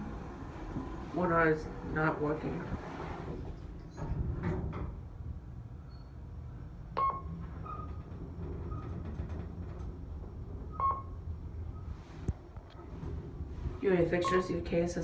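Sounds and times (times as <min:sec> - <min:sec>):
elevator car humming: 0:00.0 - 0:15.0.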